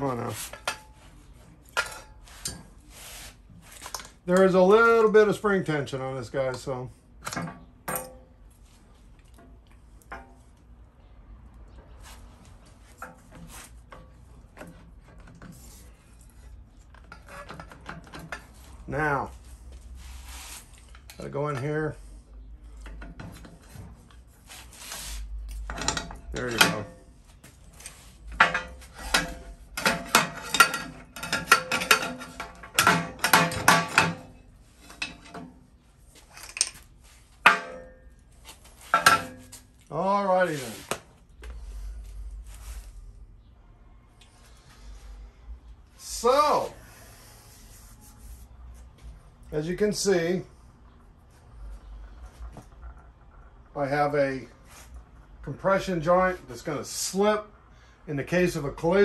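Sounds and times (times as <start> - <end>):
metal parts clicking and tapping: 25.5 - 27.0, 28.2 - 35.5
metal shaft clinking and rattling: 25.5 - 27.0, 28.2 - 35.5.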